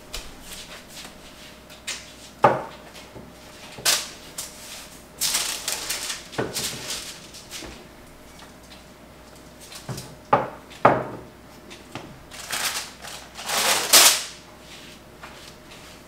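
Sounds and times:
baking paper crinkling: 0:03.6 - 0:07.8, 0:12.3 - 0:16.0.

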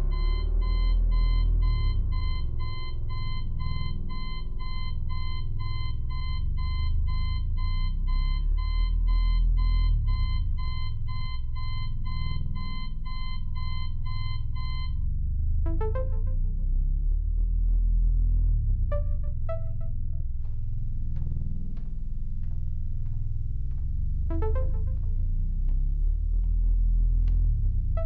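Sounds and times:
low rumbling drone: 0:00.0 - 0:28.0
digital alarm clock beeping: 0:00.1 - 0:15.0.

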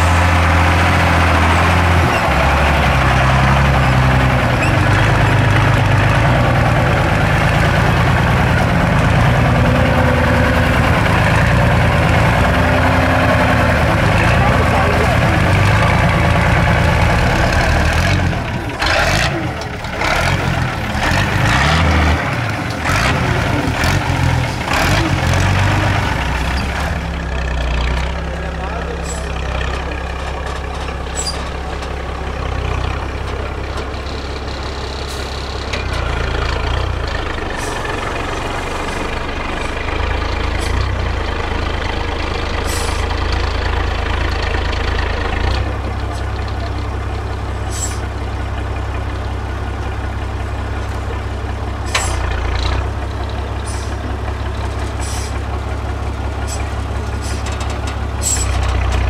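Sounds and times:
truck diesel engine rising and falling: 0:00.0 - 0:59.0.

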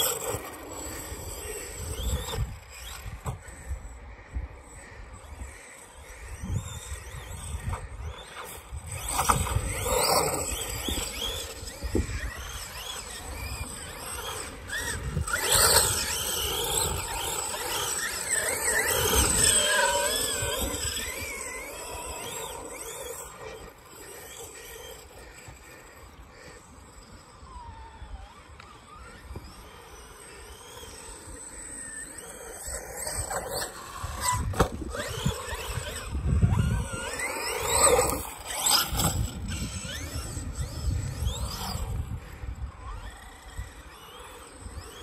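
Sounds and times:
electric rc car motor whining: 0:00.0 - 0:45.0
wind on microphone: 0:06.2 - 0:23.5, 0:33.1 - 0:45.0.

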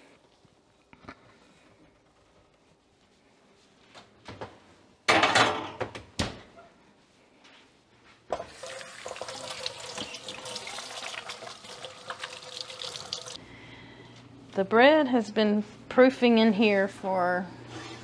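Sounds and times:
water running from tap: 0:08.4 - 0:13.4.

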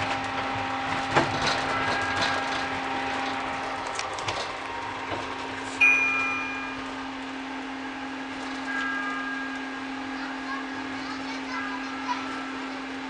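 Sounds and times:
electric train humming: 0:00.0 - 0:13.0
bell ding: 0:01.7 - 0:02.8, 0:05.8 - 0:07.0, 0:08.6 - 0:10.6.

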